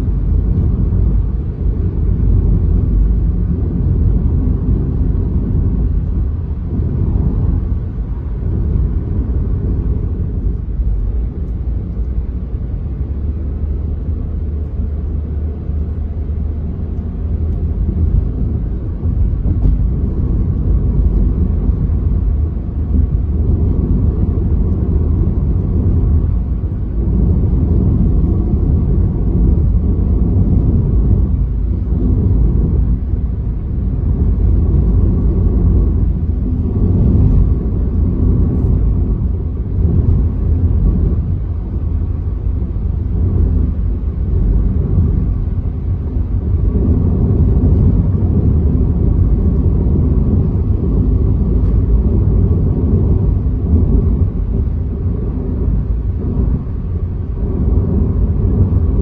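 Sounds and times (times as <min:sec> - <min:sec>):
car engine: 0:00.0 - 0:59.0
tyre and road noise in car: 0:00.0 - 0:59.0.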